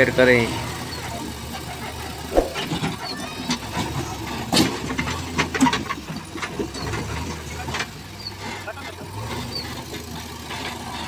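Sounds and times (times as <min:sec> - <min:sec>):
diesel engines running: 0:04.0 - 0:11.0.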